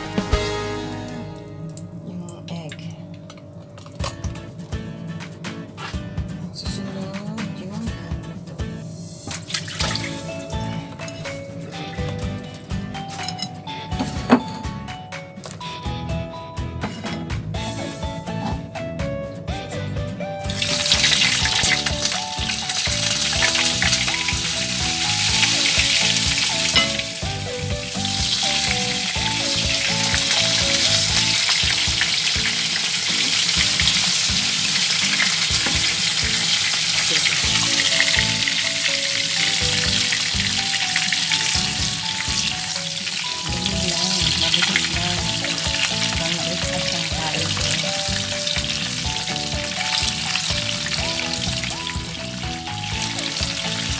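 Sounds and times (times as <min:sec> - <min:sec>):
background music: 0:00.0 - 0:53.9
hot dogs sizzling in oil: 0:09.0 - 0:10.9, 0:20.4 - 0:53.9.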